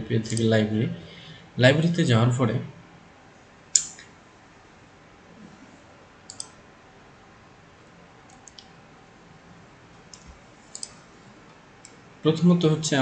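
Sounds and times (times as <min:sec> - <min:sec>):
faint room hiss: 0:00.0 - 0:13.0
computer mouse clicks: 0:06.3 - 0:06.6, 0:08.3 - 0:08.7, 0:10.1 - 0:11.0.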